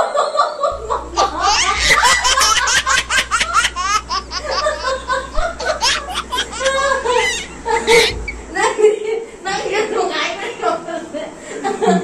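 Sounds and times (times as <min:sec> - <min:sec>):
woman laughing hard: 0:00.0 - 0:09.1
man laughing: 0:00.7 - 0:08.3.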